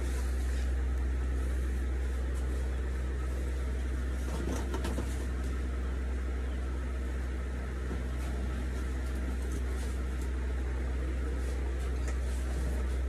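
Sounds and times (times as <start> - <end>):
low background hum: 0.0 - 13.0.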